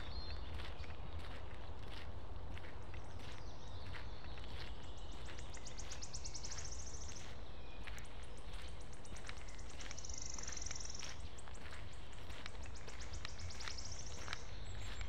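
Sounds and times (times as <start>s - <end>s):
footsteps on dirt road: 0.0s - 15.0s
songbird trilling: 5.0s - 8.0s, 9.1s - 15.0s.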